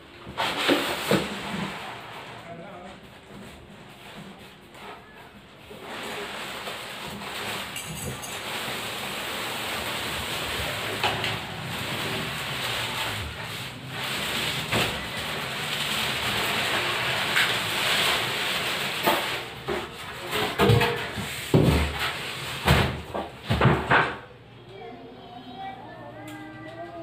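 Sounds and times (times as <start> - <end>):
cardboard scraping and rustling: 0.3 - 24.0.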